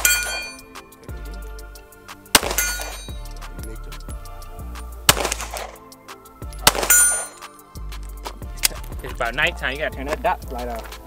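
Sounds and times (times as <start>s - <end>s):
background music with bass line: 0.0s - 11.0s
gunshots: 2.4s - 3.2s, 5.1s - 5.8s, 6.6s - 7.4s.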